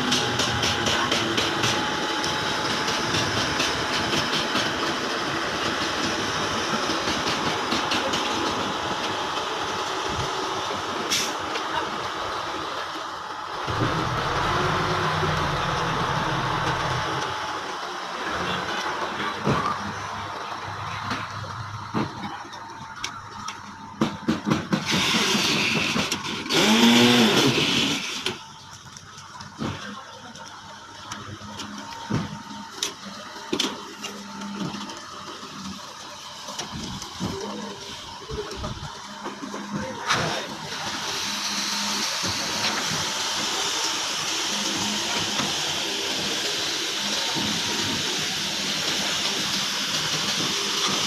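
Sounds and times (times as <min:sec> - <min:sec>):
pump truck engine and hydraulics: 0:00.0 - 0:51.0
hose spraying water: 0:24.8 - 0:28.4, 0:34.0 - 0:51.0.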